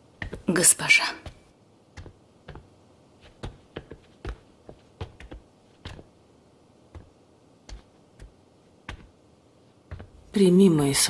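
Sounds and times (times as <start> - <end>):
footsteps on stone floor: 0.2 - 6.2, 6.9 - 9.2, 9.8 - 10.3.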